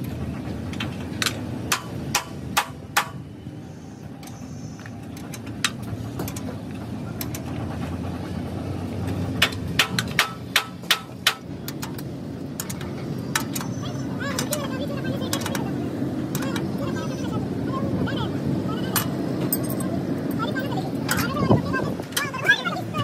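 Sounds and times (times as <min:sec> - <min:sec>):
steady low rumble: 0:00.0 - 0:13.3.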